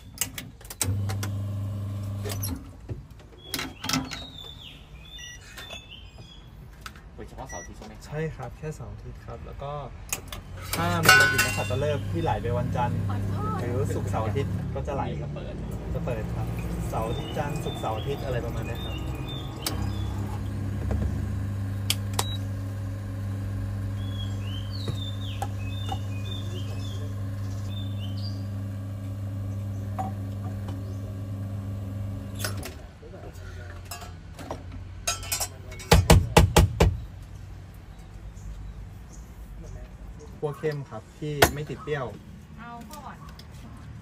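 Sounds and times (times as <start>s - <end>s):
espresso machine pump humming: 0.9s - 2.5s, 10.8s - 14.7s, 16.0s - 32.6s
faint bird chirps: 3.4s - 6.5s
sharp knocks: 35.9s - 37.0s.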